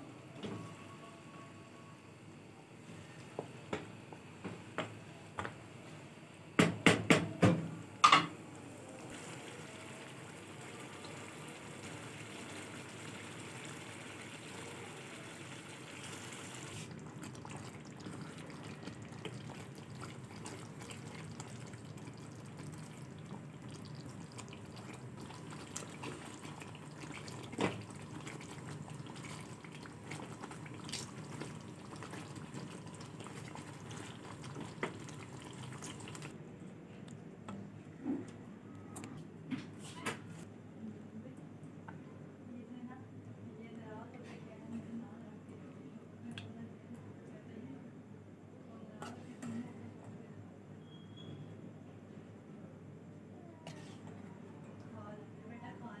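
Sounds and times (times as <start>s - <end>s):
gravy bubbling in a pan: 9.0s - 36.4s.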